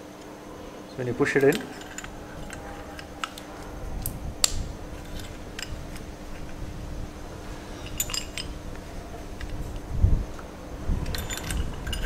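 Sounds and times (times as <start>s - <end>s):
metal spanner clicks and scrapes: 1.4s - 3.5s, 7.8s - 8.6s, 11.0s - 12.0s.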